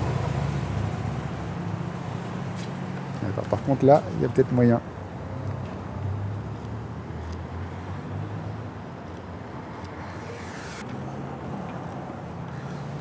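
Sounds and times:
street traffic engine rumble: 0:00.0 - 0:13.0.

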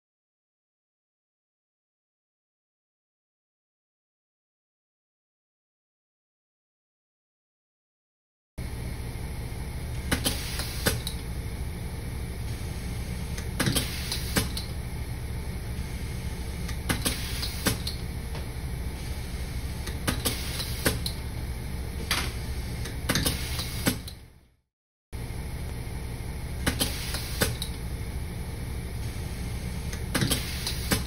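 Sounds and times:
low machine hum: 0:08.6 - 0:24.6, 0:25.2 - 0:31.0.

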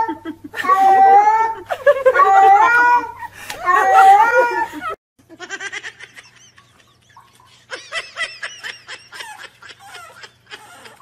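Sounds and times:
person laughing: 0:00.0 - 0:11.0.

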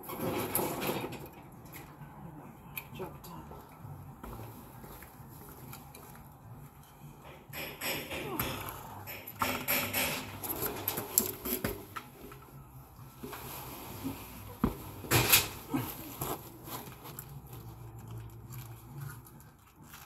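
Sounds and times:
gloved hands handling parts: 0:09.1 - 0:19.3.

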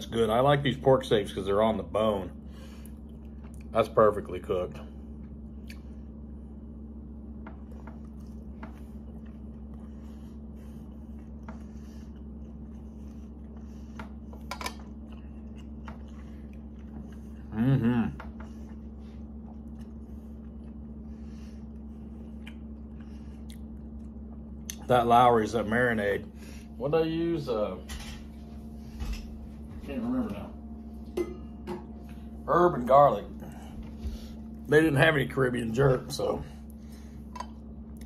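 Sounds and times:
low room hum: 0:00.0 - 0:38.0
man chewing: 0:02.7 - 0:03.7, 0:05.0 - 0:24.9
man humming mm: 0:17.4 - 0:18.3.

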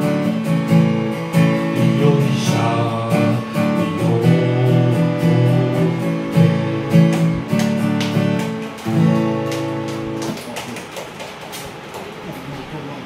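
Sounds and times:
acoustic guitar strumming chords: 0:00.0 - 0:10.4.

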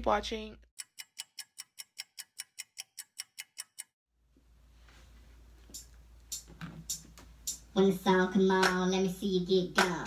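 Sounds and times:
clock ticking: 0:00.8 - 0:04.0.

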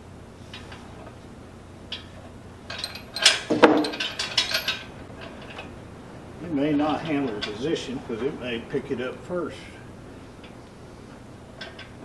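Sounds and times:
steel chain and hook clinking: 0:02.7 - 0:05.7.

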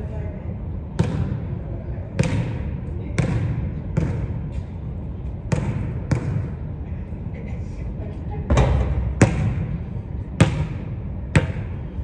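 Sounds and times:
basketball bouncing on hardwood floor: 0:01.0 - 0:01.4, 0:02.2 - 0:02.6, 0:03.2 - 0:04.4, 0:05.5 - 0:06.5, 0:08.6 - 0:09.7, 0:10.4 - 0:11.7.

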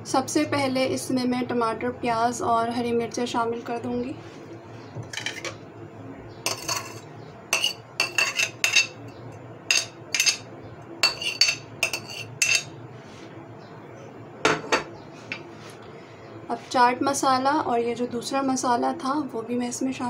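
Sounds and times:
metal spoon scraping ceramic plate: 0:05.0 - 0:05.6, 0:06.5 - 0:09.1, 0:09.7 - 0:10.4, 0:11.0 - 0:12.7.

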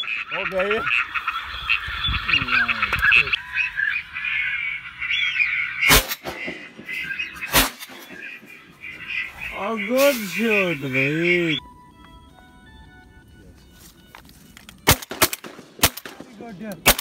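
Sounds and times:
ducks quacking: 0:00.0 - 0:11.6
shotgun shot: 0:05.9 - 0:08.3, 0:14.9 - 0:17.0.

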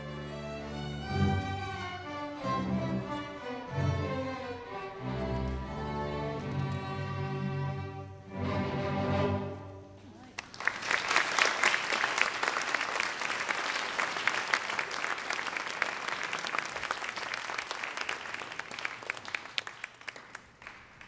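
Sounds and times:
audience applauding: 0:10.2 - 0:21.0.

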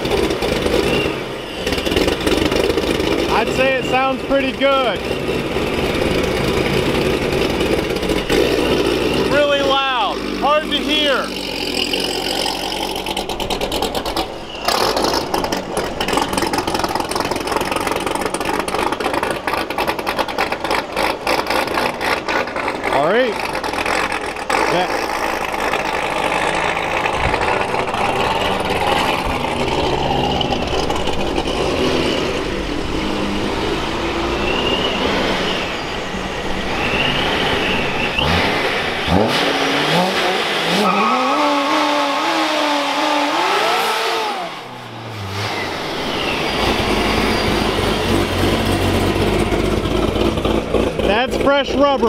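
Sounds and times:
car engine revving: 0:00.0 - 0:52.0.

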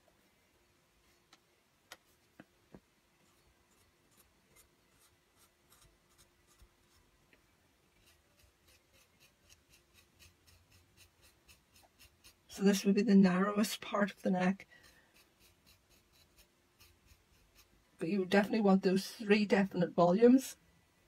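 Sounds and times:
wire tool scraping clay: 0:03.2 - 0:07.1, 0:07.9 - 0:13.0, 0:13.6 - 0:17.8.

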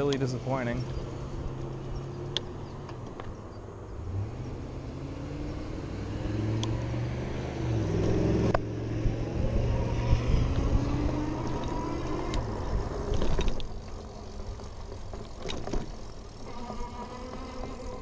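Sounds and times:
steady traffic: 0:00.0 - 0:18.0
truck engine accelerating: 0:00.7 - 0:15.2
wind noise: 0:06.3 - 0:13.7.

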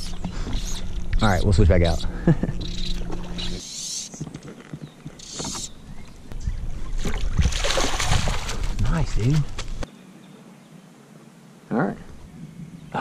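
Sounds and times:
outboard motor humming: 0:00.0 - 0:03.6
light water splashes: 0:07.0 - 0:09.5.

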